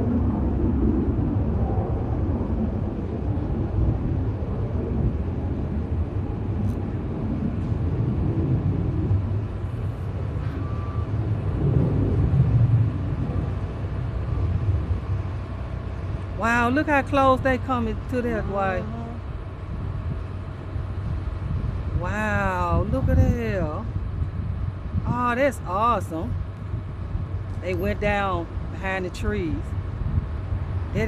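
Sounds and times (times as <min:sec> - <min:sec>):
distant aircraft engines droning: 0:00.0 - 0:31.0.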